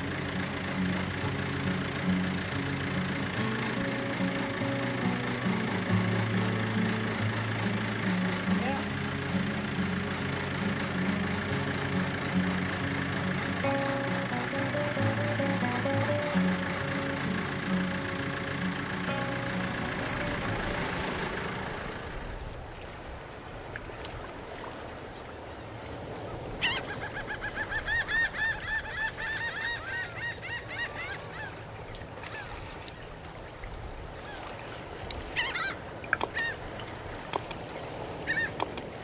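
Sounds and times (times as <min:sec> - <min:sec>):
birds calling: 0:26.1 - 0:39.0.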